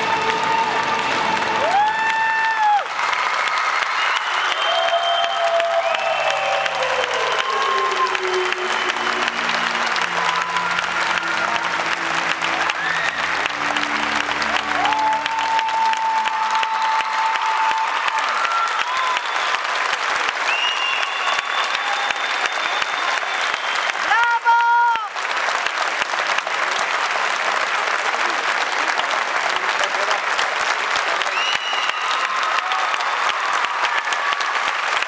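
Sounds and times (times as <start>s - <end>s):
audience applauding: 0.0s - 35.0s
music: 4.4s - 19.3s.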